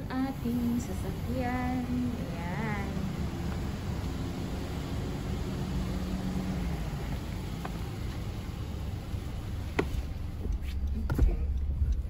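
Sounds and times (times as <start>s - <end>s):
minivan engine idling: 0.0s - 12.0s
light tick: 9.7s - 12.0s.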